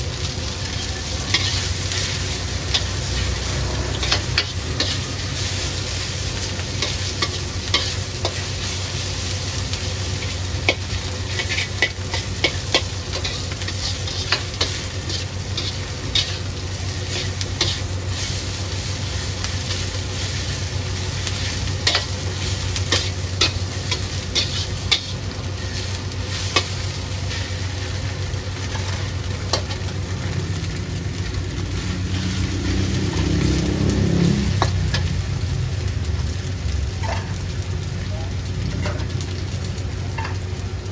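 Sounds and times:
food frying: 0.0 - 40.9
metal spatula scraping a wok: 0.5 - 27.9, 28.6 - 29.9, 31.2 - 33.5, 37.0 - 37.4.

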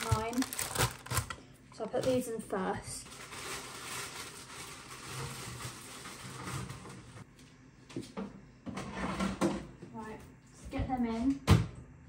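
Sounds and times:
frozen fries rattling into basket: 0.0 - 1.3, 3.0 - 7.0.

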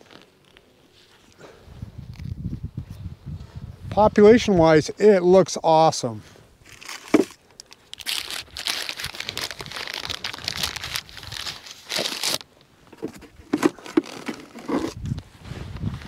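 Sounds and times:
paper wrapping crinkling: 6.6 - 15.0.

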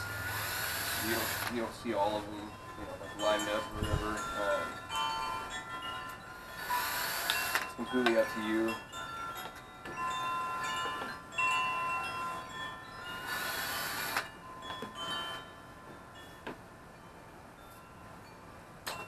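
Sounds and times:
cordless drill boring: 0.0 - 1.7, 6.4 - 7.8, 13.2 - 14.3
wind chimes ringing: 0.0 - 19.0.

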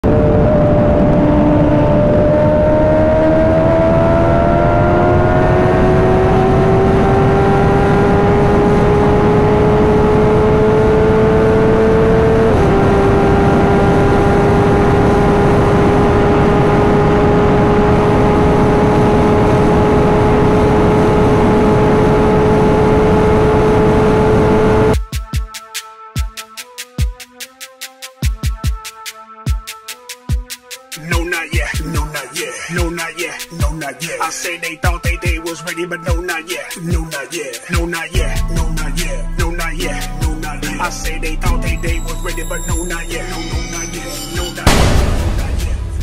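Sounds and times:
wind rush on microphone: 0.0 - 24.5
motorcycle engine at full throttle: 0.0 - 25.0.

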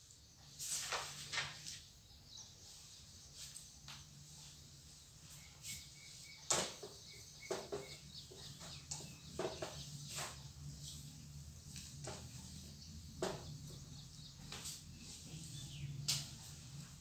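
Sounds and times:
faint knocks and handling noises: 6.5 - 17.0.

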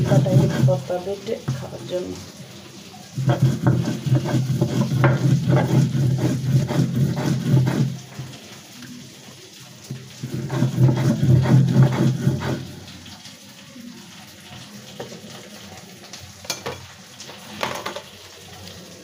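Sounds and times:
stone roller grinding on slab: 0.0 - 1.7, 3.2 - 8.3, 10.2 - 12.9.

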